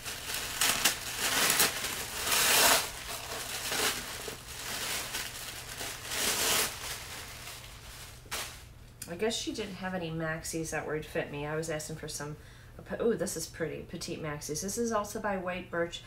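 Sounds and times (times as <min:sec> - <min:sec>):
packaging and clothes rustling: 0:00.0 - 0:08.7.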